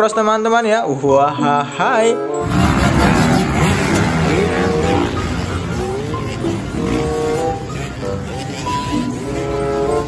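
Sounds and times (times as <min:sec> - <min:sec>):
background music: 0:00.0 - 0:10.0
dirt bikes revving: 0:02.4 - 0:10.0.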